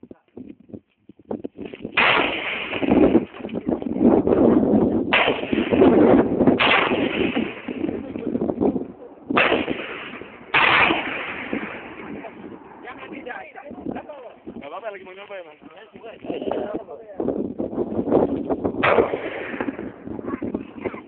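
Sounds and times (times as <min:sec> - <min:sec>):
loud sudden blasts: 0:01.9 - 0:03.4, 0:05.0 - 0:08.5, 0:09.3 - 0:13.4, 0:18.8 - 0:21.0.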